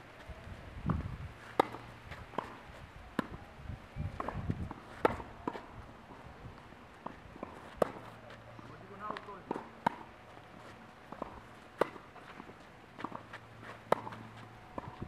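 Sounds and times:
racket hitting tennis ball: 0.9 - 3.4, 4.1 - 6.2, 7.0 - 15.0
tennis ball bouncing: 0.9 - 3.4, 4.2 - 15.0
footsteps scuffing on clay: 7.1 - 15.0.

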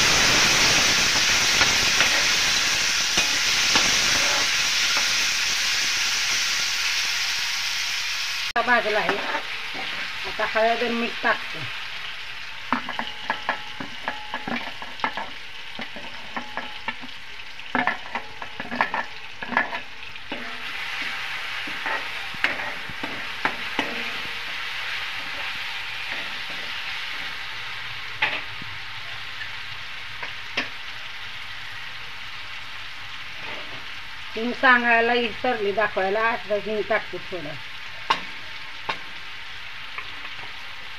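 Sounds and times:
food sizzling in oil: 0.0 - 40.9
metal ladle scraping pan: 1.4 - 5.3, 8.9 - 10.1, 12.7 - 27.4.

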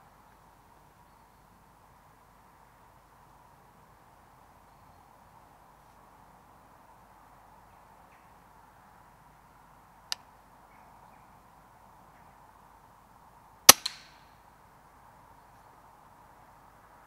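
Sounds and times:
air rifle shot crack: 13.7 - 14.1.

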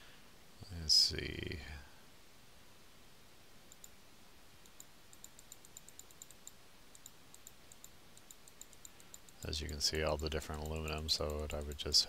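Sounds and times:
mouse scroll wheel clicking: 4.6 - 12.0.

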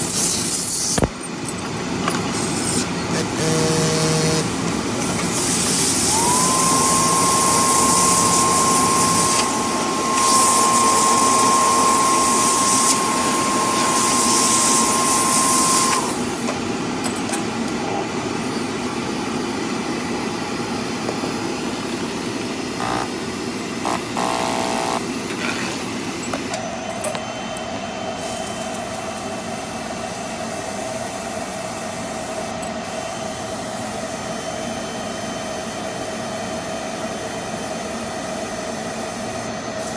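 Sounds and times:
machine hum and hiss: 0.0 - 39.9
blower motor whining: 2.2 - 16.6, 21.1 - 30.4
hiss of blowing air: 5.3 - 16.4
steady tone: 5.9 - 16.2.

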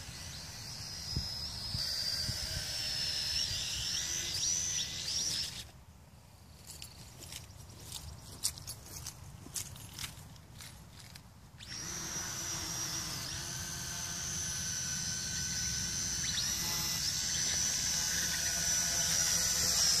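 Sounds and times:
small drone motors whining: 0.0 - 5.8, 11.6 - 20.0.

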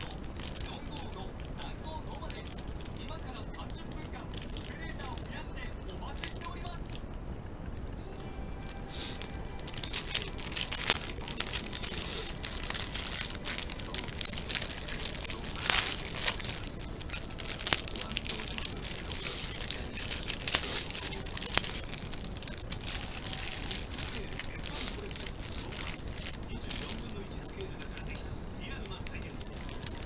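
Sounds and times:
plastic bag crinkling: 0.0 - 30.0.

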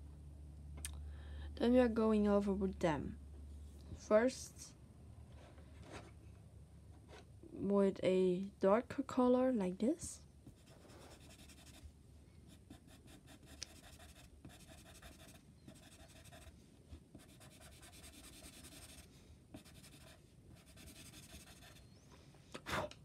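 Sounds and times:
pencil scratching on paper: 10.5 - 11.8, 12.5 - 16.5, 17.1 - 21.9.

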